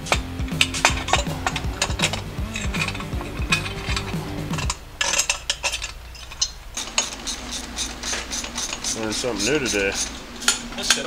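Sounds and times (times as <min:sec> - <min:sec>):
background music: 0:00.0 - 0:05.2
metal exhaust pipe clinking: 0:00.0 - 0:11.0.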